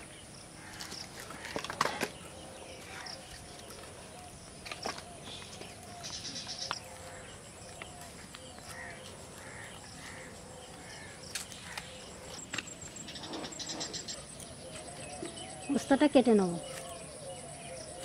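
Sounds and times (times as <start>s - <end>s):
birds chirping and trilling: 0.0s - 18.0s.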